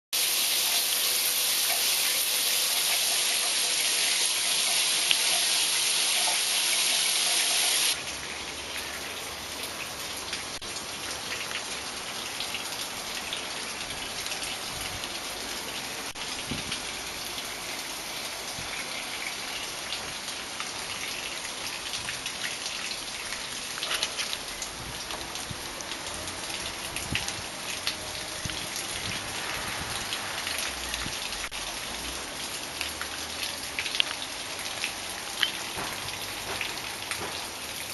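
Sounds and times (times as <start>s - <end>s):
shower spray hissing: 0.2s - 8.0s
water trickling in bamboo channel: 0.2s - 37.9s.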